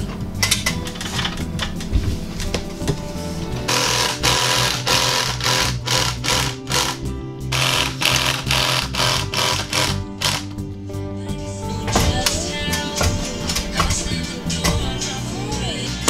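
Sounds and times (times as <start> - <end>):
background music: 0.0 - 16.0
cordless drills whirring: 3.7 - 10.5.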